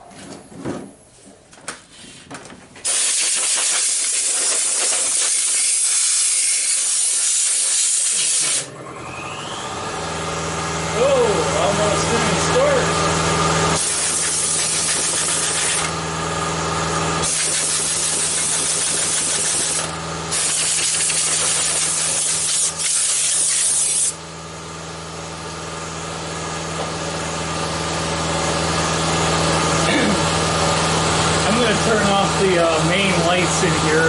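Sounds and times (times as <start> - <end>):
compressed air hissing: 2.8 - 8.7, 13.8 - 15.9, 17.2 - 24.2
motor hum: 2.9 - 34.0.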